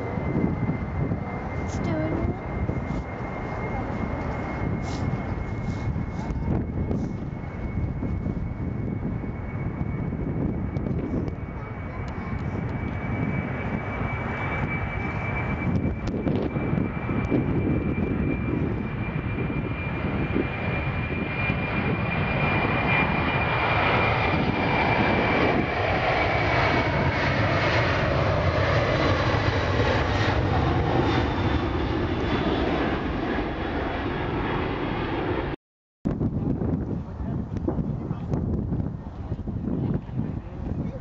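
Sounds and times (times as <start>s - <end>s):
high engine whine: 0.0s - 41.0s
jet engines roaring: 0.0s - 41.0s.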